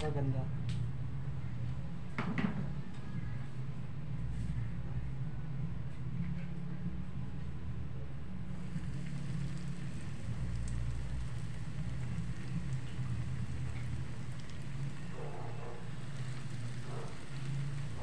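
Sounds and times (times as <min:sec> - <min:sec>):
low steady hum: 0:00.0 - 0:18.0
food sizzling in hot oil: 0:08.5 - 0:18.0.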